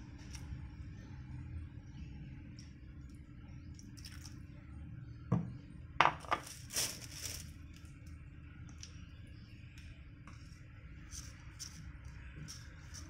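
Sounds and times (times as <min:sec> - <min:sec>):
scraping rustle: 0:06.4 - 0:07.5.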